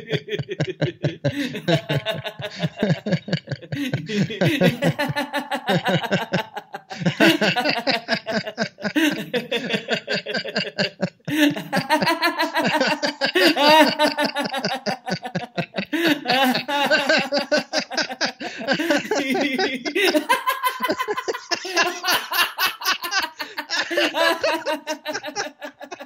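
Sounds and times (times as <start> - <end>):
men laughing: 0.0 - 26.0.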